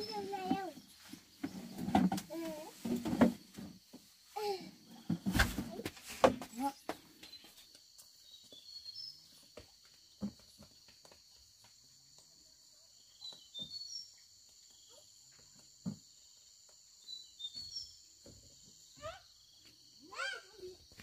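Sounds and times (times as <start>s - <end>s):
crickets chirring: 0.0s - 21.0s
bird chirps: 17.0s - 19.7s.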